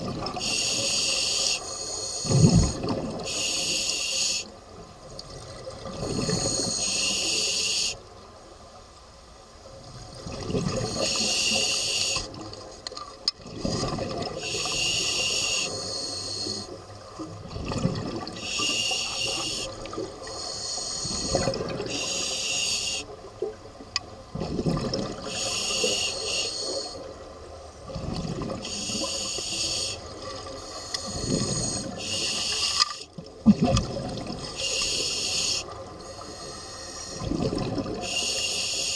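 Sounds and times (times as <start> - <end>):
diver inhaling through regulator: 0.4 - 4.5, 6.1 - 8.0, 10.8 - 12.4, 14.4 - 16.8, 18.4 - 23.1, 25.2 - 27.1, 28.6 - 33.1, 34.5 - 37.4, 38.0 - 38.9
gurgling exhaled bubbles: 2.3 - 3.4, 9.8 - 11.3, 13.4 - 15.6, 17.2 - 20.3, 21.0 - 22.1, 24.2 - 25.8, 27.8 - 29.4, 30.0 - 32.2, 33.2 - 36.0, 37.1 - 38.2.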